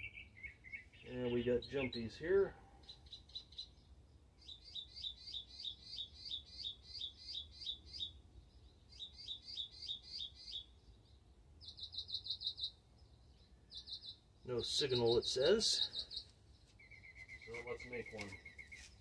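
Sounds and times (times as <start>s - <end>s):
small birds chirping: 0.0s - 19.0s.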